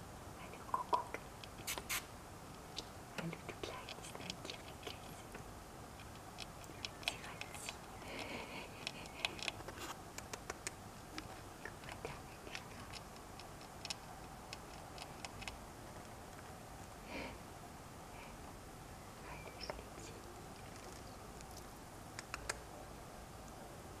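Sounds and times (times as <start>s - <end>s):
small animal clicks and scratches: 0.6s - 16.6s, 19.4s - 22.7s.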